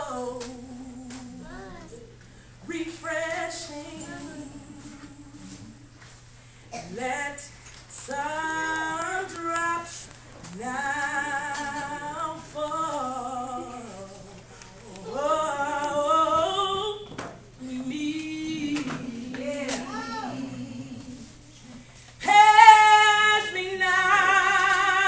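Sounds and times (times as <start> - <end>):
woman singing unaccompanied: 0.0 - 1.7, 2.6 - 6.0, 6.8 - 25.0.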